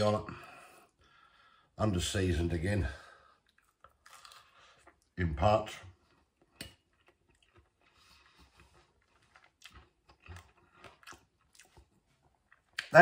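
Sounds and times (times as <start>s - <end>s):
person chewing crispy food: 3.3s - 5.2s, 5.9s - 12.9s.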